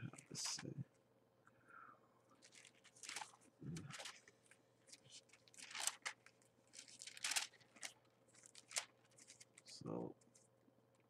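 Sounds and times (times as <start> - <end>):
thin paper pages rustling: 2.4 - 10.5.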